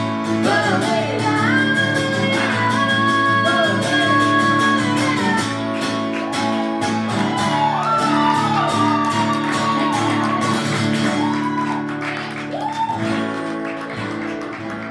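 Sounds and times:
acoustic guitar strumming: 0.0s - 11.4s.

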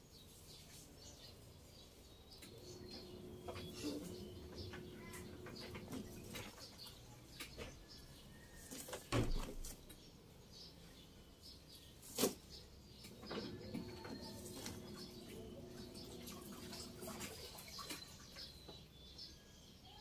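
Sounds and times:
leaves and branches rustling: 13.4s - 18.1s.

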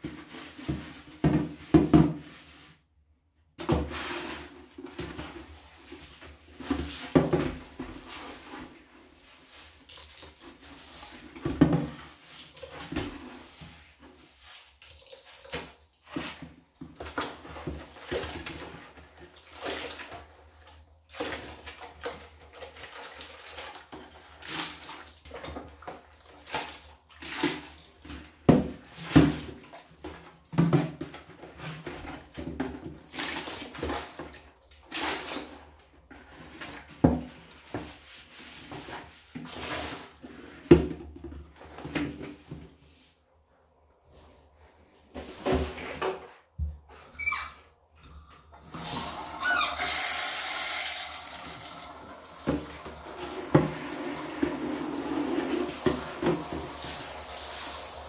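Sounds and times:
scrubbing and sloshing soapy water: 0.0s - 47.1s, 47.8s - 58.0s.

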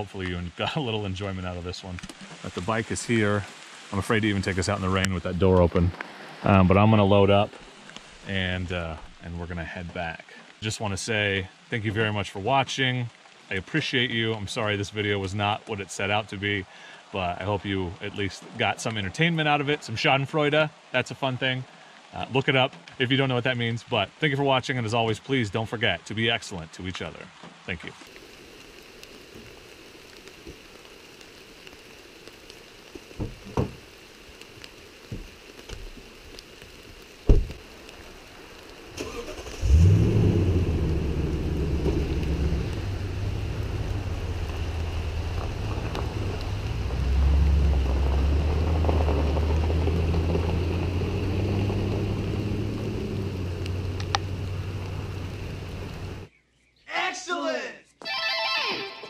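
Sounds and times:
steady rain: 0.0s - 56.3s
truck engine starting and running: 39.0s - 56.3s.

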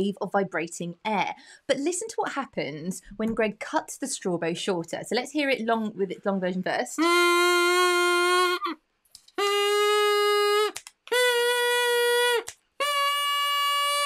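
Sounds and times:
straw oboe held notes: 7.0s - 8.8s, 9.4s - 14.0s.

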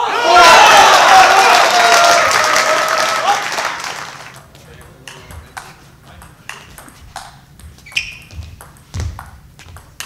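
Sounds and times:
table tennis ball clicking: 4.3s - 10.0s.

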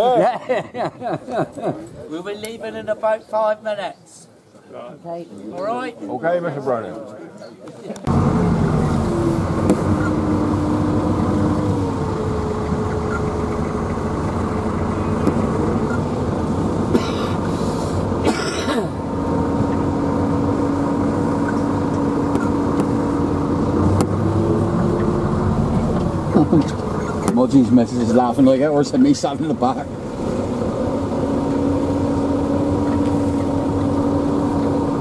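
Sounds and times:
tractor engine running: 8.1s - 35.0s.

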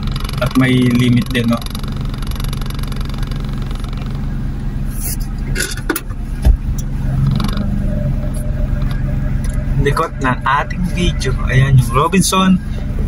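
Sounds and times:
car engine idling: 0.0s - 13.0s
loud thump: 5.8s - 7.6s.

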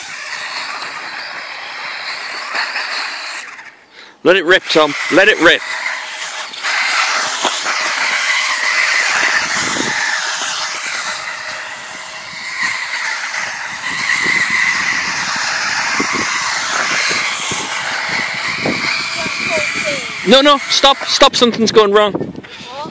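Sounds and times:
toy truck motor whining: 0.0s - 21.6s.

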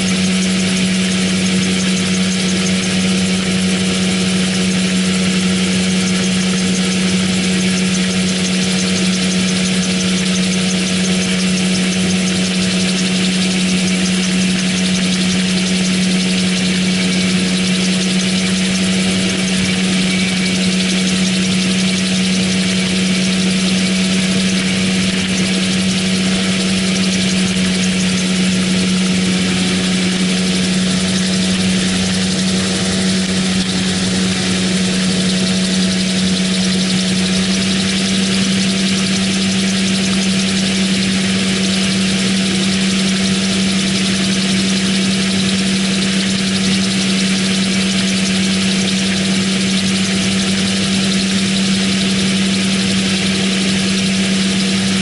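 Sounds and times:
engine and propeller drone: 0.0s - 55.0s.

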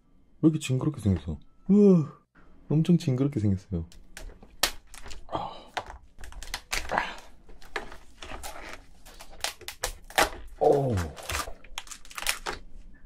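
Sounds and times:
lobster shell cracking: 3.9s - 12.7s
person grunting: 10.6s - 11.5s.

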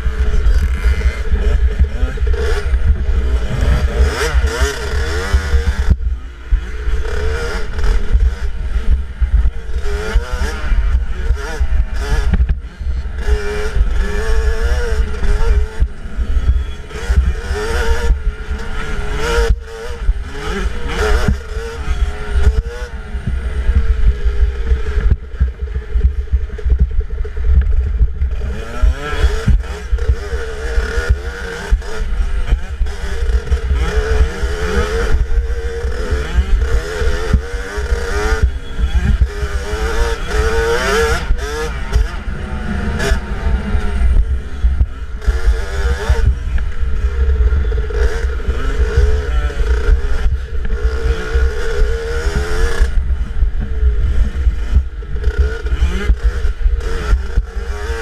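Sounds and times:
dirt bike engine revving: 0.0s - 58.0s
heavy low rumble on microphone: 22.1s - 30.2s, 41.2s - 57.7s.

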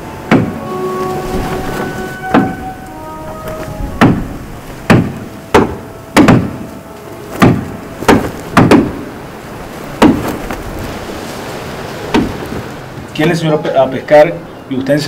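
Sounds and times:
sharp ringing knocks: 0.3s - 4.3s.

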